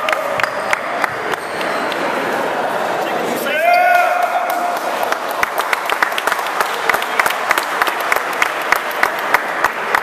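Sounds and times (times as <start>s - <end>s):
small crowd applauding: 0.0s - 2.0s, 4.2s - 10.0s.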